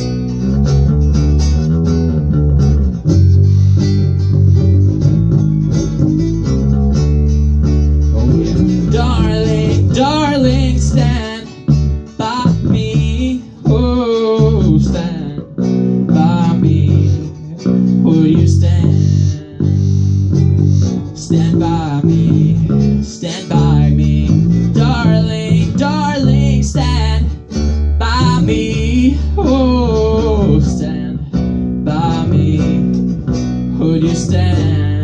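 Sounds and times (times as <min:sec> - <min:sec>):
live band with guitars: 0:00.0 - 0:35.0
person singing: 0:08.1 - 0:20.1, 0:20.9 - 0:33.0, 0:33.7 - 0:35.0.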